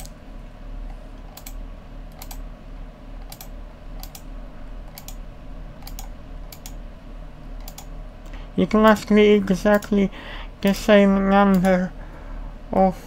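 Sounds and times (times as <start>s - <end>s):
steady low hum: 0.0s - 13.0s
computer mouse clicks: 0.9s - 2.4s, 3.2s - 4.3s, 4.9s - 5.2s, 5.8s - 6.8s, 7.6s - 7.9s, 9.7s - 10.0s, 11.5s - 11.8s.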